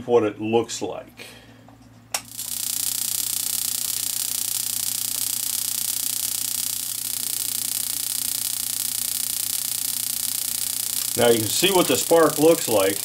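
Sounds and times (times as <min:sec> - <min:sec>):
spark igniter snapping: 0:02.2 - 0:13.0.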